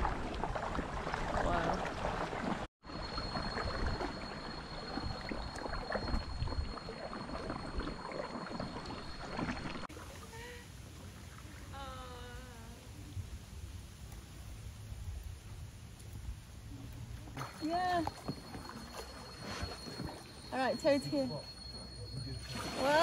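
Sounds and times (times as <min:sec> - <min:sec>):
water splashing around canoe: 0:00.0 - 0:11.6, 0:17.2 - 0:21.3, 0:22.3 - 0:23.0
steady high-pitched tone: 0:02.8 - 0:09.9, 0:17.4 - 0:23.0.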